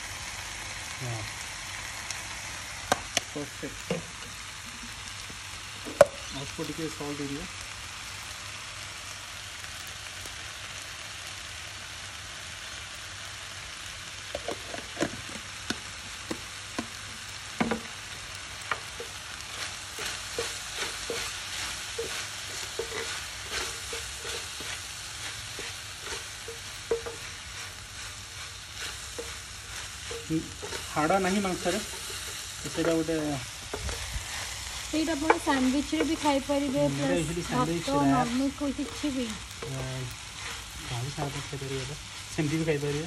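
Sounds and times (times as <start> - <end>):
meat sizzling on grill plate: 0.0 - 43.0
wooden spatula knocking and scraping: 17.6 - 17.9, 20.0 - 21.3, 22.0 - 24.8, 25.5 - 27.8, 28.8 - 34.4, 35.1 - 41.5.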